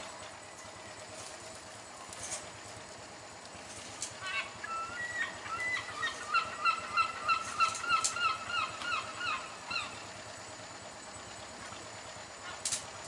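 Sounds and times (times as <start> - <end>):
bird honking calls: 4.2 - 10.2.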